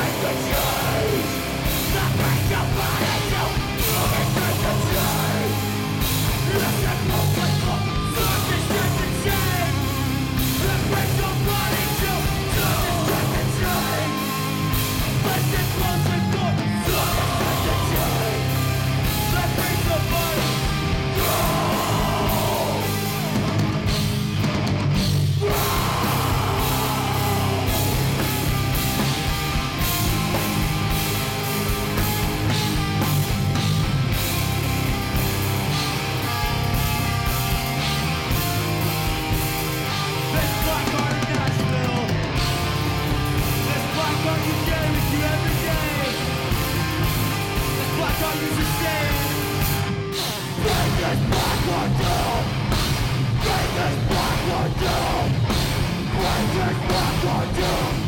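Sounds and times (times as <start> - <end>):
person singing: 0.0 - 5.7, 6.3 - 9.9, 10.5 - 14.3, 15.1 - 18.6, 21.2 - 23.5, 25.4 - 28.3
drums: 0.0 - 58.0
electric guitar: 0.0 - 58.0.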